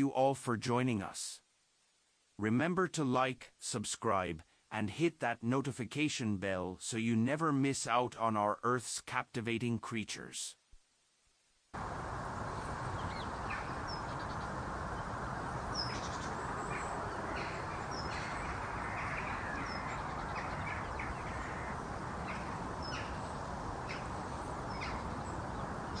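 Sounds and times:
steady background hiss: 0.0 - 26.0
high bird chirps: 12.4 - 26.0.

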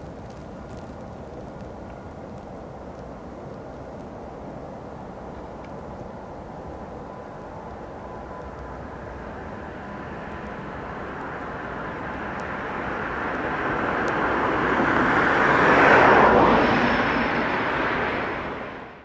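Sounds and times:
passing vehicle rushing: 9.2 - 19.0.

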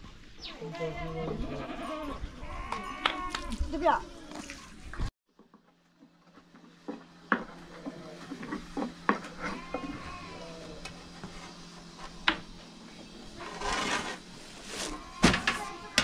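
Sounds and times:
livestock bleating: 0.6 - 3.6, 9.3 - 10.9
rustle: 13.4 - 16.0.

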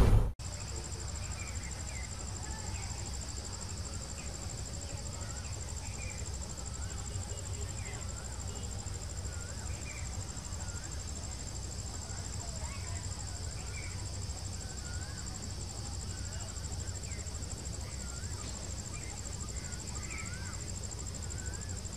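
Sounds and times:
low steady rumble: 0.0 - 0.4
insects trilling: 0.4 - 21.9.

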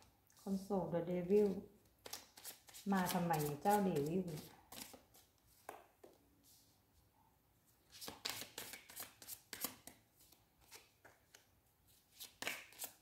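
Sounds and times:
cards snapping while shuffled: 12.2 - 13.0.

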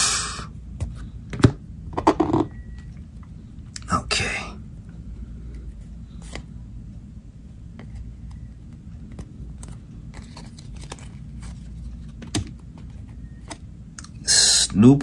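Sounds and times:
low steady hum: 0.0 - 15.0
cards being flipped through: 7.8 - 13.6.

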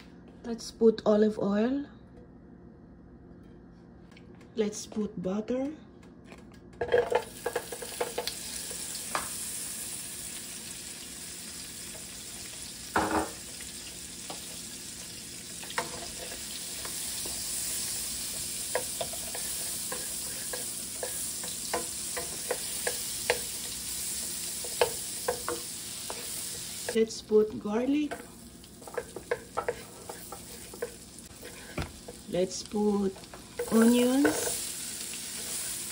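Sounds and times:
butter and oil sizzling in a pan: 6.9 - 35.9
wooden spatula tapping a pan: 24.6 - 26.3.

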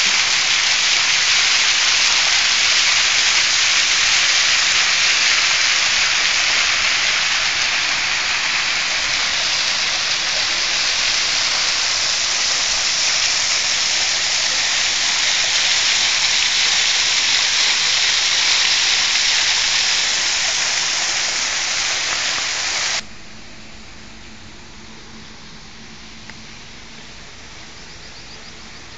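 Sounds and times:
waterfall splashing into pool: 0.0 - 23.0
faint steady hum: 0.0 - 28.9.

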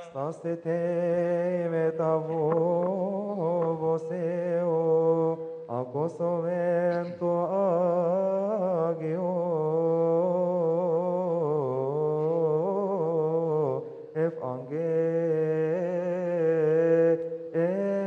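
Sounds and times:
man chanting: 0.0 - 18.0.

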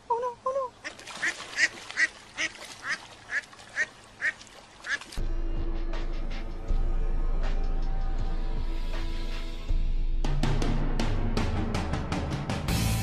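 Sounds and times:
duck quacking: 0.8 - 5.1
music: 5.2 - 13.0.

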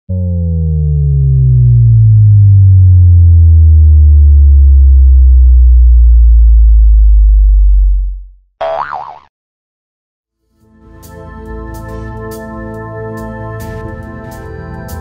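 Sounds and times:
deep synthesizer tone sliding down: 0.1 - 8.4.

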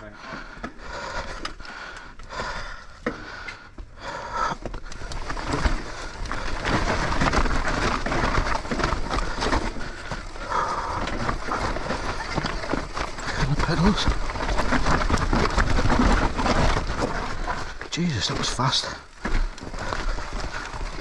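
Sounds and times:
bike rattling: 0.0 - 21.0
tyres crunching over dirt and stone: 4.6 - 21.0.

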